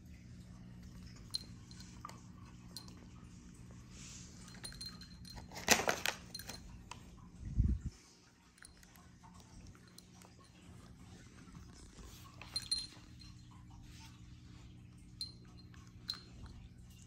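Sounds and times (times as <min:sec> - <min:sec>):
foil packet rustling and clicking: 0:05.4 - 0:06.6.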